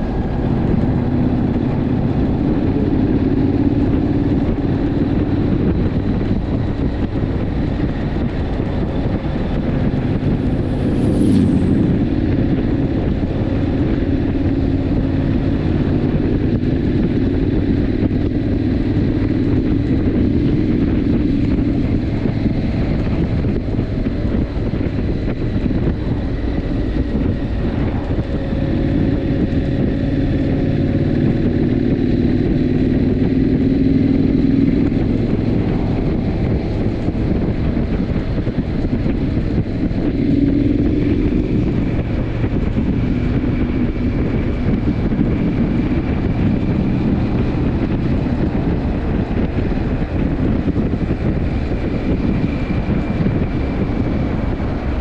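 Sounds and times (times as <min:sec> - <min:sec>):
motorcycle engine running: 0:00.0 - 0:55.0
wind rushing over microphone: 0:00.0 - 0:55.0.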